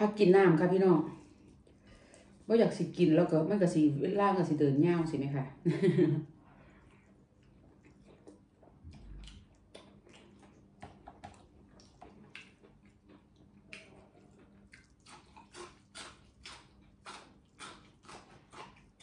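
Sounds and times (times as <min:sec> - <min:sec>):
chewing and crunching food: 0:01.1 - 0:02.6, 0:06.4 - 0:19.0.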